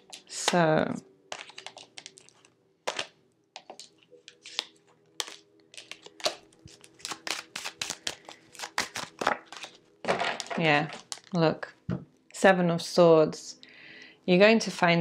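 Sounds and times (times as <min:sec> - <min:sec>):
cards shuffled and snapping: 0:01.3 - 0:11.3.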